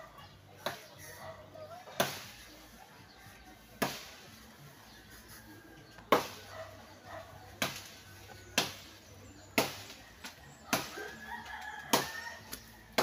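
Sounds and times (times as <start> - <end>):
chopping into tree branches: 1.9 - 2.5, 3.8 - 4.4, 6.0 - 6.6, 7.6 - 13.0.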